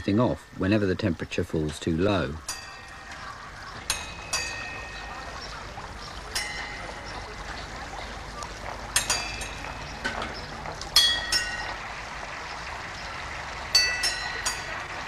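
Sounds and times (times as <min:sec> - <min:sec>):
water pouring and splashing: 0:00.0 - 0:15.0
sharp metallic clanks: 0:02.4 - 0:05.4, 0:08.9 - 0:11.8, 0:13.8 - 0:15.0.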